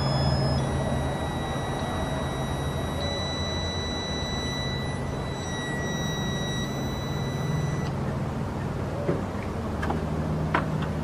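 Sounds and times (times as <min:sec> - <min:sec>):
high beep tone: 0:00.0 - 0:08.0.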